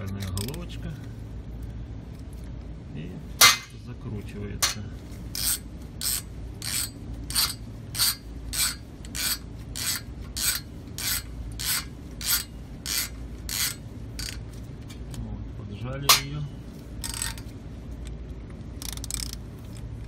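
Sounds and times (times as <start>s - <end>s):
ratchet wrench whirring: 5.3s - 14.4s, 17.0s - 17.5s, 18.8s - 19.8s.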